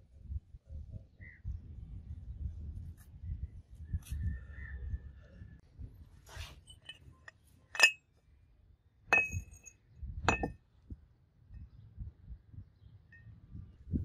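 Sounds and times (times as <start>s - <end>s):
metal parts clinking: 6.6s - 7.1s, 7.7s - 8.0s, 9.1s - 9.7s, 10.3s - 10.5s.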